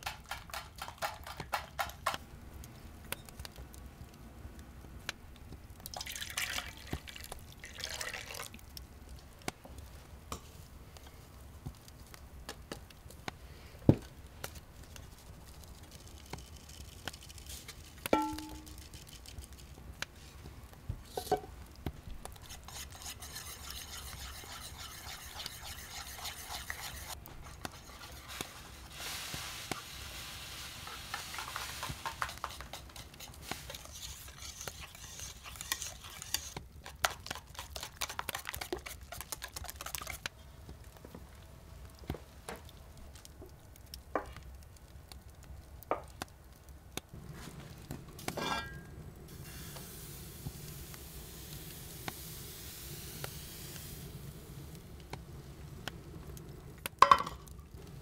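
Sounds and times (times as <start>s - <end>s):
utensil scraping in bowl: 22.3s - 29.4s, 30.6s - 40.3s.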